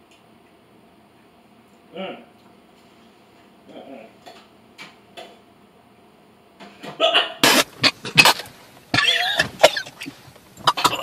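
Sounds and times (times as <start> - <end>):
man coughing hard: 10.7 - 11.0.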